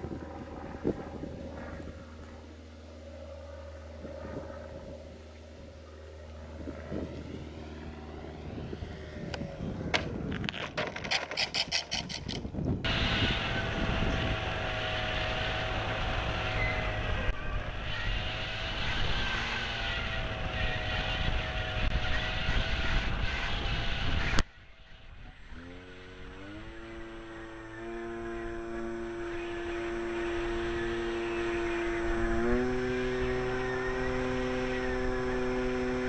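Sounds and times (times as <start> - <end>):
model plane rattling on tarmac: 0.0 - 14.6
electric motor and propeller whine: 0.0 - 36.0.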